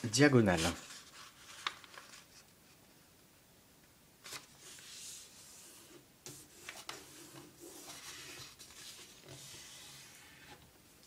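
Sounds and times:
paper rustling and rubbing: 0:00.0 - 0:02.5, 0:04.2 - 0:10.6
paper crackles: 0:00.0 - 0:02.6.

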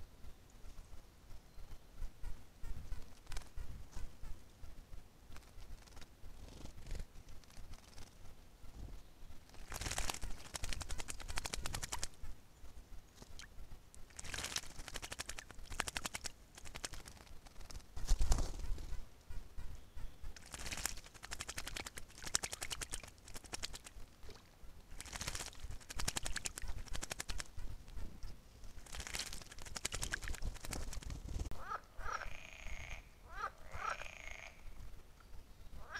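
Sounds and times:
bird wing-fluttering splashes: 0:05.3 - 0:08.2, 0:09.4 - 0:12.3, 0:13.1 - 0:18.9, 0:20.4 - 0:27.7, 0:28.7 - 0:31.5.

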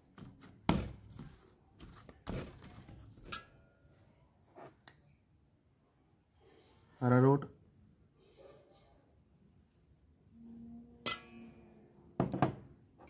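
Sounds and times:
metallic ring: 0:11.0 - 0:11.8.

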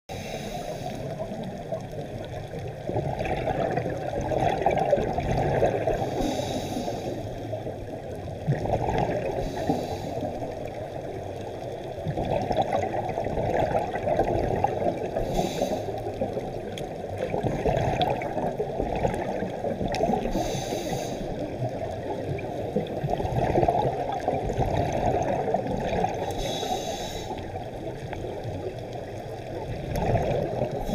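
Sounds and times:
scuba regulator hiss: 0:00.1 - 0:01.1, 0:06.0 - 0:07.3, 0:09.4 - 0:10.3, 0:15.2 - 0:16.0, 0:20.3 - 0:21.4, 0:26.3 - 0:27.4
bubbling exhaled air: 0:00.1 - 0:07.6, 0:08.4 - 0:10.8, 0:11.9 - 0:28.7, 0:29.3 - 0:30.9.

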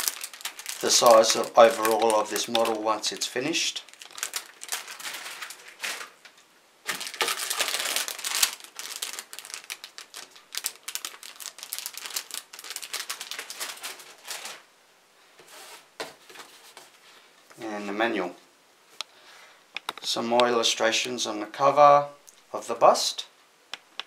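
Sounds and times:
plastic bags crinkling: 0:00.0 - 0:14.7.

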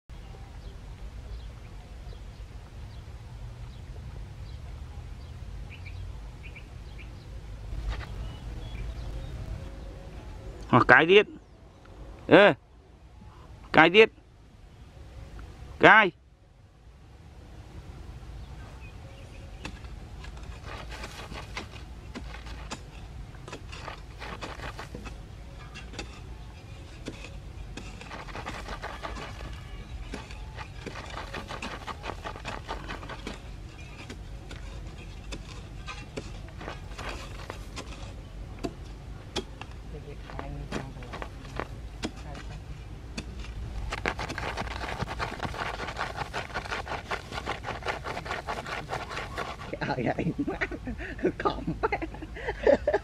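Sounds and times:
small birds chirping: 0:00.1 - 0:12.3, 0:18.4 - 0:50.4
dog scratching in sandy soil: 0:07.7 - 0:09.3, 0:19.5 - 0:38.4, 0:40.0 - 0:50.5
steady low rumble: 0:34.2 - 0:52.4.

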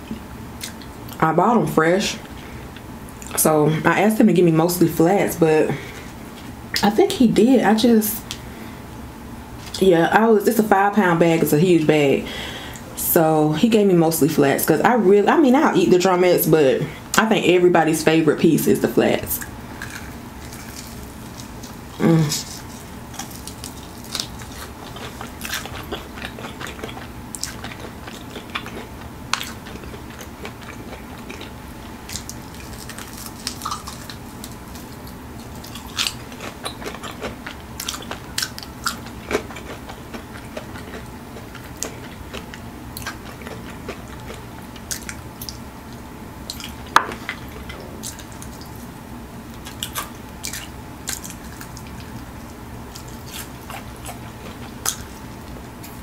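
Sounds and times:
crispy food crunching: 0:19.3 - 0:56.0.

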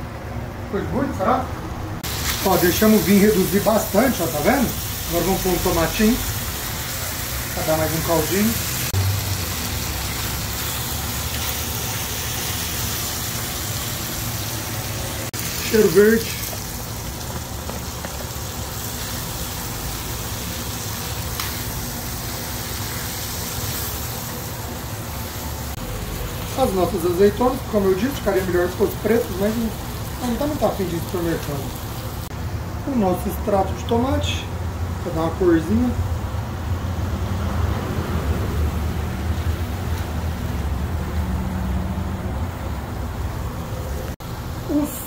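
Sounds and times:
food sizzling in a frying pan: 0:02.0 - 0:33.3.

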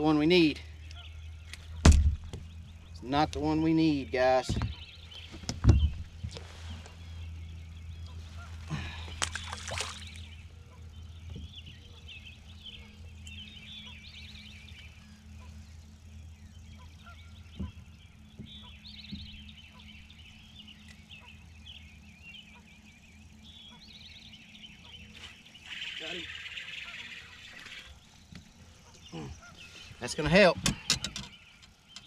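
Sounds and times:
birds chirping and warbling: 0:00.0 - 0:32.0
steady low hum: 0:00.0 - 0:32.0
knocks and rattles: 0:04.4 - 0:04.8.

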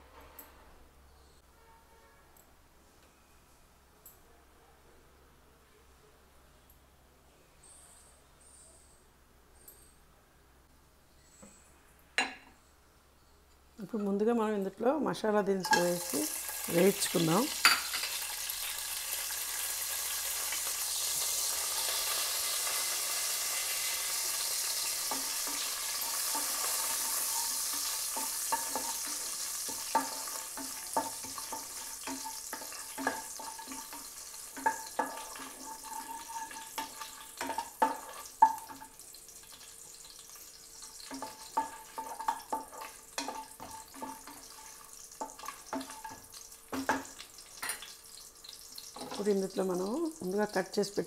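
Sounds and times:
spices sizzling in hot oil: 0:13.8 - 0:51.0
spatula knocking and scraping pot: 0:25.0 - 0:39.0, 0:41.0 - 0:47.8, 0:49.0 - 0:49.3.

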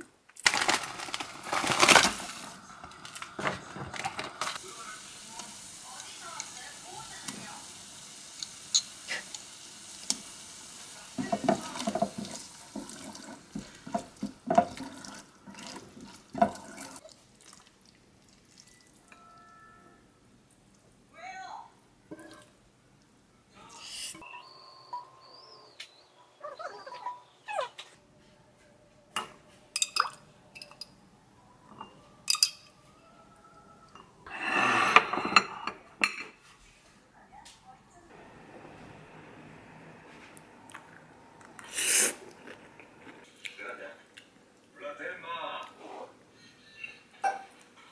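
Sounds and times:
low sizzle: 0:00.4 - 0:21.1, 0:38.1 - 0:43.3
glass and ceramic clinking: 0:08.7 - 0:08.9, 0:29.2 - 0:31.0, 0:31.7 - 0:32.8, 0:34.8 - 0:36.4, 0:46.4 - 0:47.6
chopsticks stirring food in a pan: 0:10.9 - 0:17.8
dishes scraping and rattling: 0:11.2 - 0:17.0, 0:34.6 - 0:36.5.

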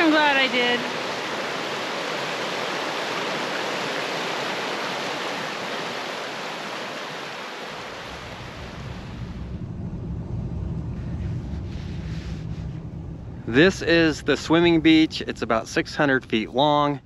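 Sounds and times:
creek rushing over rocks: 0:00.0 - 0:09.1
low vehicle rumble: 0:07.8 - 0:17.0.

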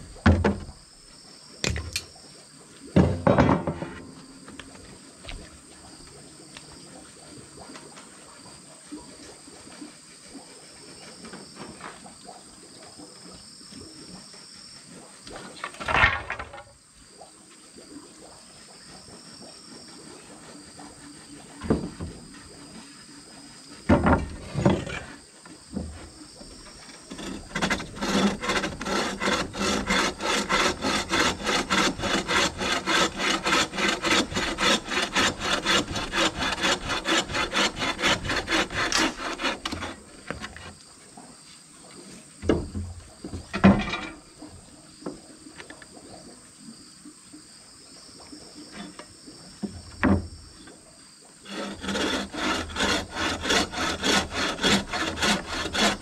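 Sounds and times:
bow saw cutting wood: 0:19.8 - 0:40.8, 0:48.7 - 0:50.3, 0:51.4 - 0:56.0.

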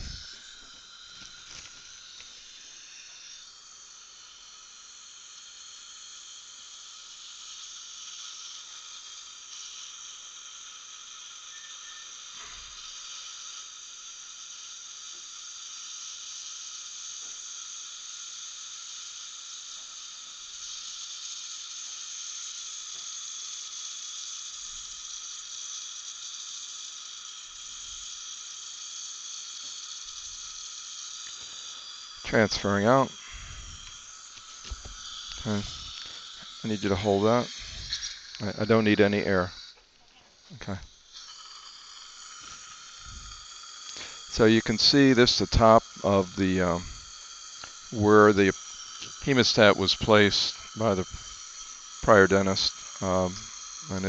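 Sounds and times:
suction tip hissing: 0:00.0 - 0:54.0.

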